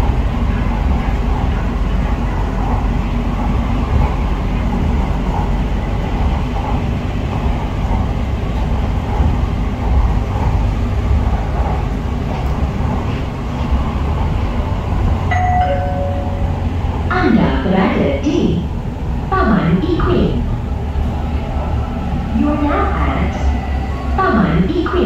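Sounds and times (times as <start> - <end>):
train rumble and rail noise: 0.0 - 25.0
two-note falling chime: 15.3 - 16.8.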